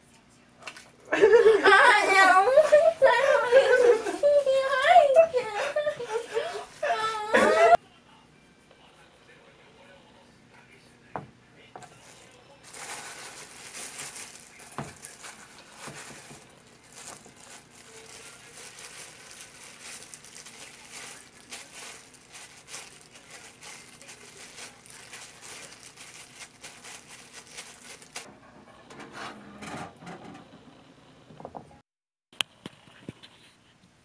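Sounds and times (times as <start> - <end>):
plastic glove crinkling: 11.8 - 28.3.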